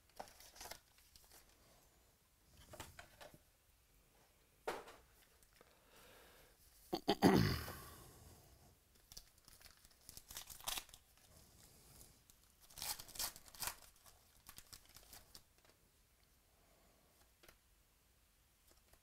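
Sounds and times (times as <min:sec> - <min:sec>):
card pack wrapper tearing: 0:09.0 - 0:11.2, 0:12.6 - 0:15.7.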